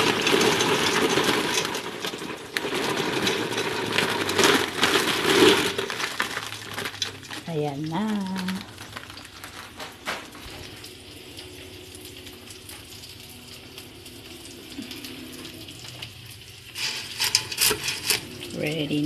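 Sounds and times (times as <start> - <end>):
knocks and scrapes in pot: 0.0 - 7.3, 16.8 - 18.7
noodles sizzling in a metal pot: 0.0 - 19.0.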